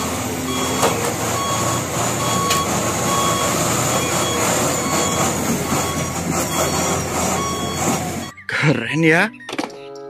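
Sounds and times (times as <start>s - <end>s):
reversing alarm beeping: 0.0s - 8.7s
truck engine rumble: 0.0s - 8.7s.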